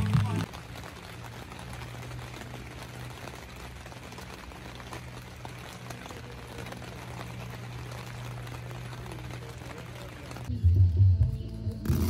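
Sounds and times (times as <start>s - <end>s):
steady rain patter: 0.0s - 10.5s.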